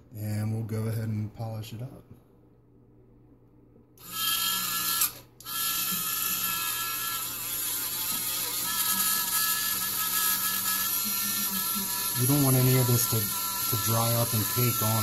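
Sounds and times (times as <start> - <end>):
rotary tool whining: 4.0 - 15.0.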